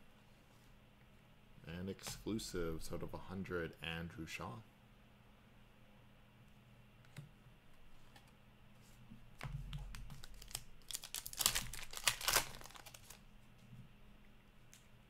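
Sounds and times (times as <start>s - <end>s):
wrapper tearing and crinkling: 10.0s - 13.2s.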